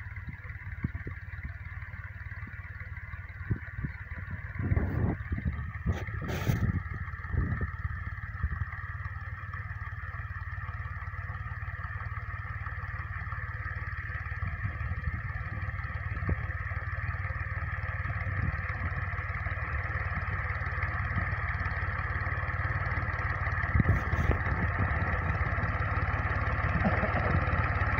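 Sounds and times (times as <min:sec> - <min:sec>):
tractor diesel engine running: 0:00.0 - 0:27.9.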